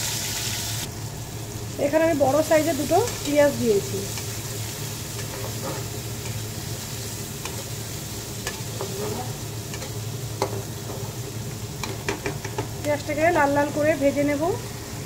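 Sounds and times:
onions sizzling in oil: 0.0s - 15.0s
spatula tapping and scraping pan: 8.4s - 11.1s, 11.8s - 12.7s.

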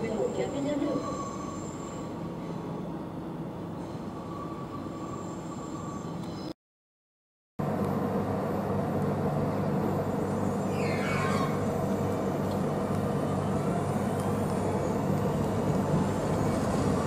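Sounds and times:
electric train hum: 0.0s - 6.6s, 7.6s - 17.0s
train rumble: 7.6s - 17.0s.

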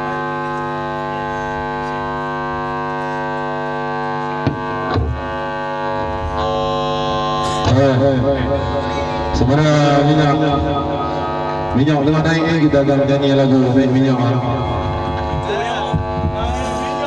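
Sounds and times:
amplifier buzz drone: 0.0s - 17.0s
wavering pitch sound: 6.2s - 15.3s.

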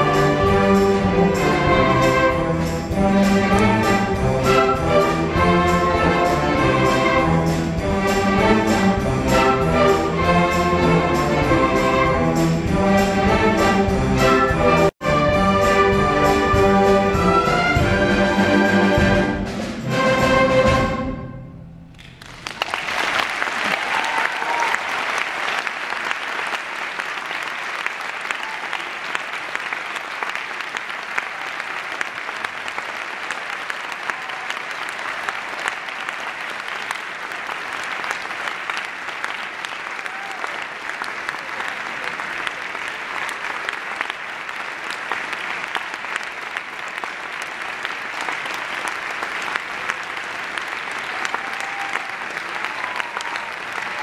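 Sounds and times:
audience applauding: 22.0s - 54.0s.

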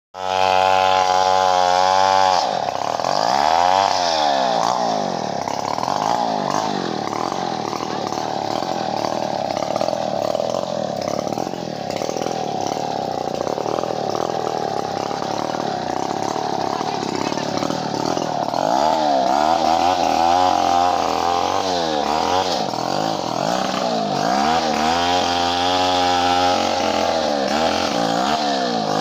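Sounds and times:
chainsaw revving: 0.2s - 29.0s.

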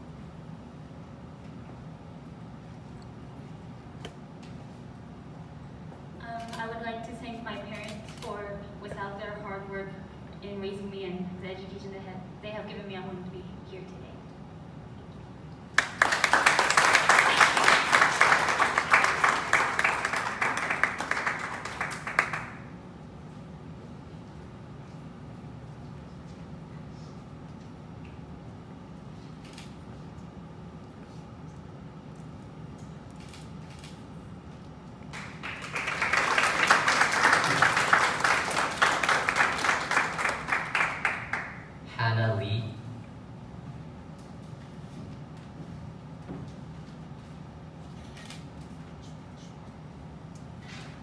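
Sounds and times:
audience applauding: 15.8s - 22.6s, 35.1s - 41.7s.

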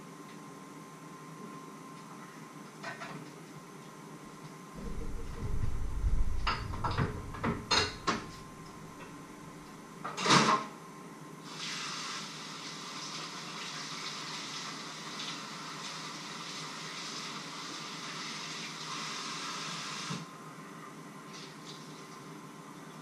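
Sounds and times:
loud clatter: 4.8s - 9.0s
steady hiss: 11.4s - 13.5s, 14.6s - 20.4s.

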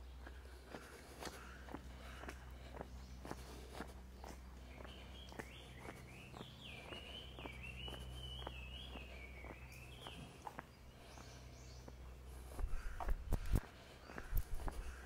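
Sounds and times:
footsteps on stone paving: 0.0s - 15.0s.

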